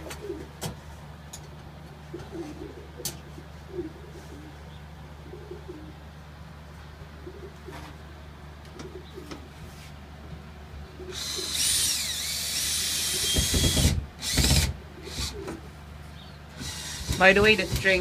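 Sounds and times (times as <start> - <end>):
pigeons cooing: 0.0 - 0.9, 1.8 - 10.0, 10.7 - 13.8, 14.6 - 18.0
power drill whining: 11.1 - 15.4, 16.5 - 17.9.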